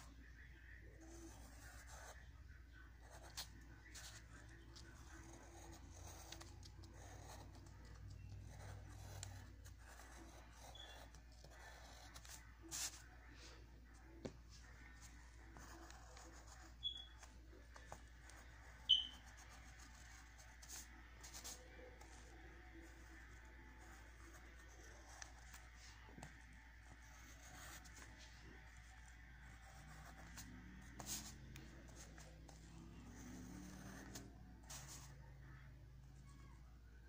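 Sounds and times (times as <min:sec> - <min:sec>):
pencil scratching on paper: 0:00.9 - 0:13.4, 0:14.6 - 0:35.2.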